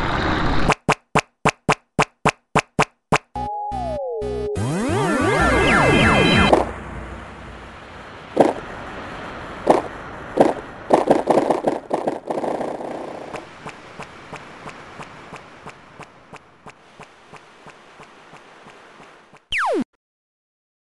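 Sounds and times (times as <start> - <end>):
sharp taps: 0.7 - 3.4.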